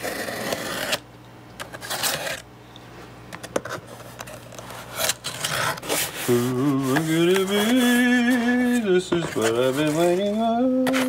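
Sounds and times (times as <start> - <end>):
box cutter scraping cardboard: 0.0 - 1.0, 1.7 - 2.4, 4.7 - 11.0.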